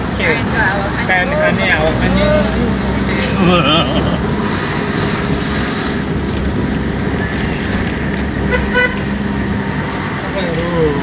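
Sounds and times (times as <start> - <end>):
vehicle road and engine rumble: 0.0 - 11.0
vehicle horn tooting: 8.5 - 9.0.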